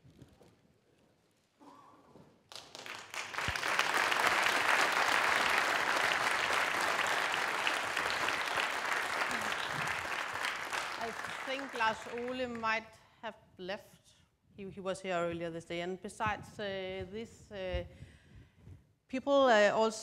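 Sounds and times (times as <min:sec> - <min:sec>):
audience applauding: 0:02.5 - 0:12.8.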